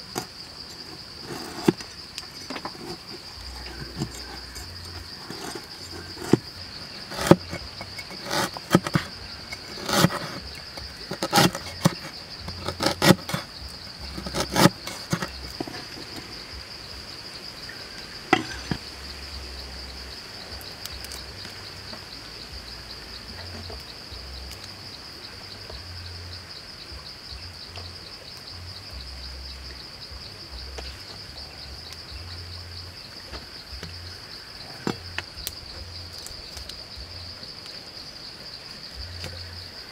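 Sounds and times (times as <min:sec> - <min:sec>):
insect chorus buzzing: 0:00.0 - 0:39.9.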